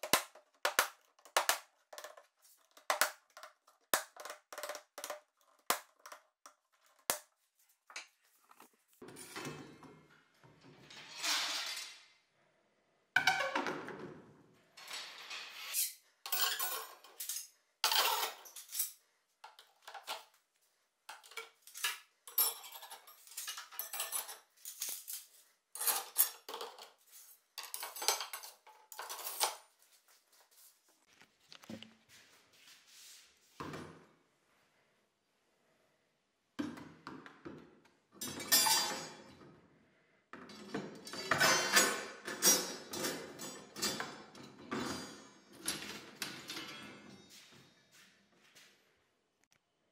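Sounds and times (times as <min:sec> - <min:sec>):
metal rods clattering into pipes: 0:09.0 - 0:12.1, 0:14.8 - 0:20.3, 0:21.1 - 0:29.6, 0:38.2 - 0:39.5, 0:40.4 - 0:47.4.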